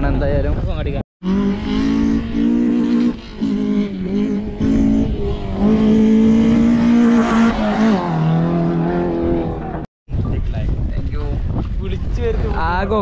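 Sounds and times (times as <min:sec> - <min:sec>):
vehicle engine revving: 0:01.2 - 0:09.9.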